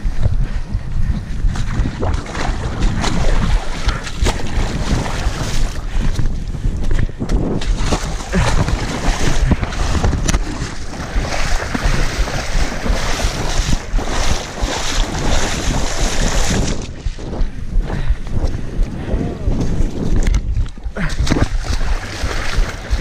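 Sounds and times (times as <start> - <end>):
wind buffeting microphone: 0.0 - 23.0
legs splashing through water: 1.5 - 6.4, 7.6 - 17.2, 20.2 - 23.0.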